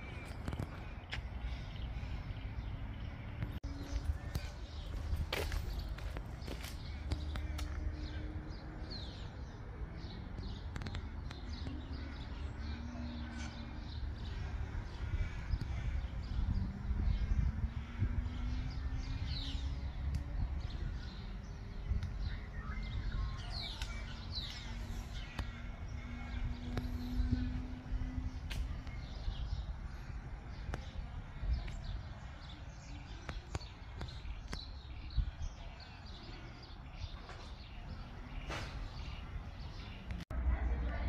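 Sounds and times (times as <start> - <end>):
birds chirping: 0.0 - 41.0
steady low rumble: 10.9 - 37.0.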